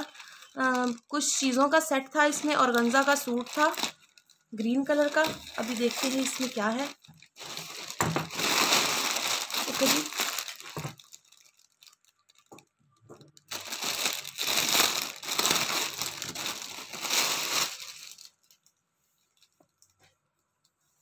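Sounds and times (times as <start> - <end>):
plastic packaging crinkling: 0.0 - 12.7, 13.3 - 19.8.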